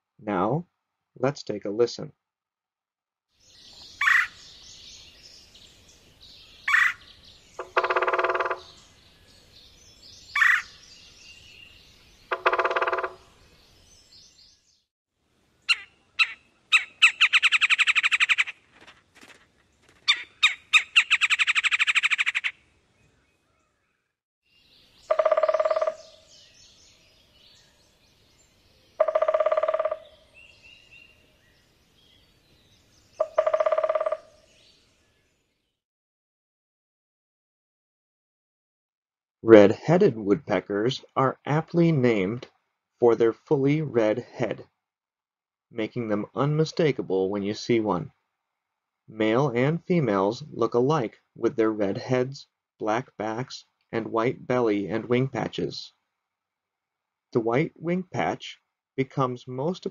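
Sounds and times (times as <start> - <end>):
woodpecker call notes: 3.5 - 14.5, 15.6 - 18.6, 20.0 - 23.9, 24.6 - 34.9
woodpecker rattle call: 3.7 - 5.1, 6.6 - 9.2, 10.0 - 13.5, 15.6 - 18.6, 20.0 - 22.6, 24.9 - 26.9, 29.0 - 31.2, 33.0 - 34.6
woodpecker drum rolls: 7.6 - 8.7, 12.3 - 13.2, 29.0 - 30.0.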